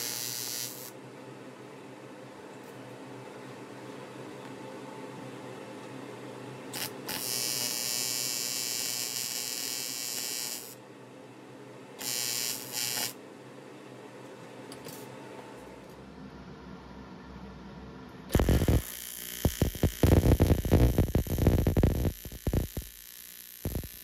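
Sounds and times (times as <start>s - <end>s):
welding arc buzzing: 0.0s - 1.0s, 6.7s - 10.8s, 12.0s - 13.2s, 18.3s - 24.0s
steady shop hum: 0.0s - 24.0s.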